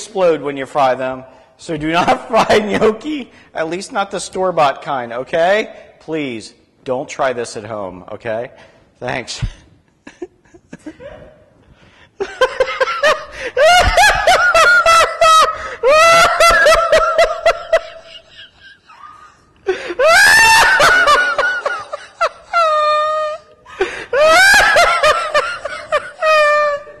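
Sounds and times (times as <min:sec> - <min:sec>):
man laughing hard: 0:12.2 - 0:27.0.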